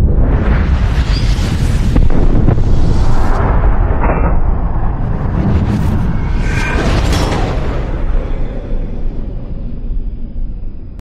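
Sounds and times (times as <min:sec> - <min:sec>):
gunshot and explosion boom: 0:00.0 - 0:09.8
sharp crack: 0:01.9 - 0:08.8.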